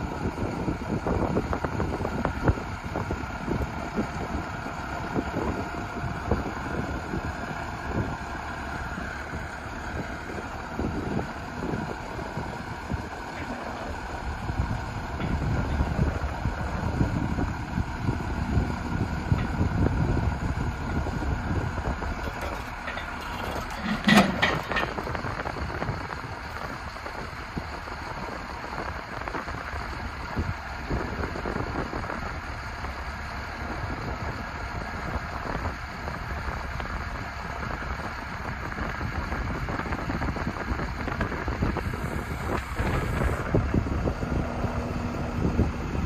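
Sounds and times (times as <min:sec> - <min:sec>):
diesel truck engine rumbling: 0:00.0 - 0:46.0
sharp metallic clatter: 0:22.2 - 0:25.2.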